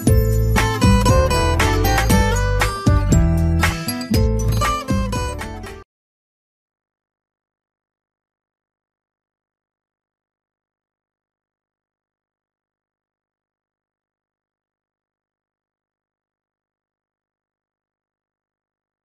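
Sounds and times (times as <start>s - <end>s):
acoustic guitar music: 0.0s - 5.8s.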